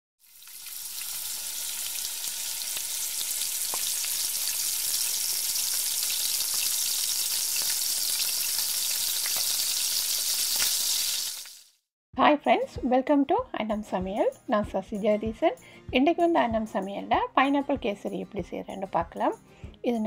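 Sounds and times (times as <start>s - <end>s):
vegetables sizzling in a wok: 0.2s - 11.8s.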